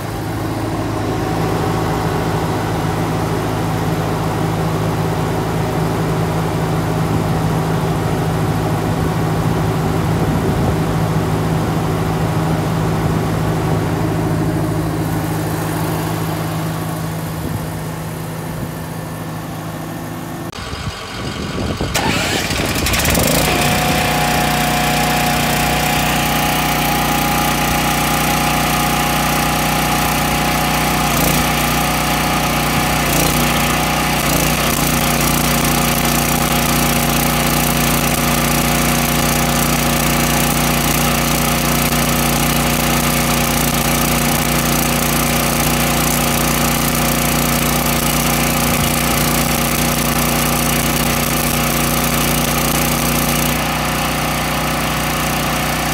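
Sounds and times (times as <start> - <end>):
welder generator engine running: 0.0 - 55.9.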